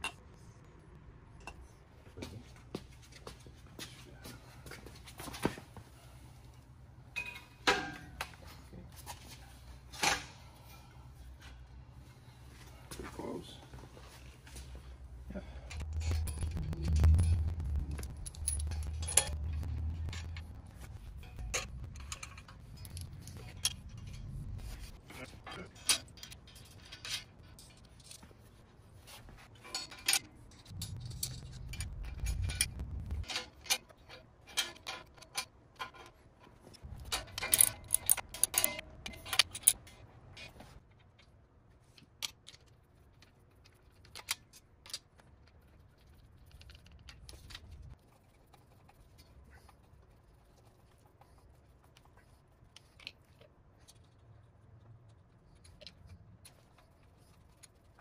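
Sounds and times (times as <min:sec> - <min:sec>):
metal tools clinking and rattling: 0:15.7 - 0:28.4, 0:29.5 - 0:40.6.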